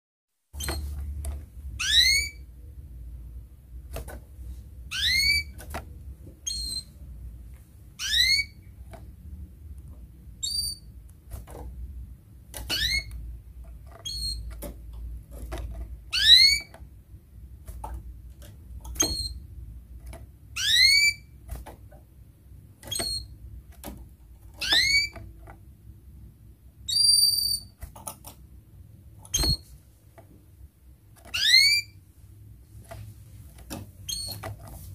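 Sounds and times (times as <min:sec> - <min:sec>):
canary calling: 0:01.7 - 0:02.5, 0:04.9 - 0:05.6, 0:06.4 - 0:07.0, 0:07.9 - 0:08.8, 0:12.6 - 0:13.2, 0:14.0 - 0:14.5, 0:16.1 - 0:16.8, 0:20.5 - 0:21.4, 0:24.6 - 0:25.2, 0:26.9 - 0:27.8, 0:31.3 - 0:32.0.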